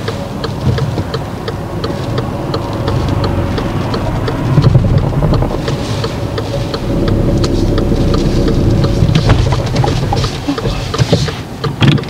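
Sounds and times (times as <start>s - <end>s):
car engine idling: 0.0s - 12.0s
turn signal ticking: 0.0s - 12.0s.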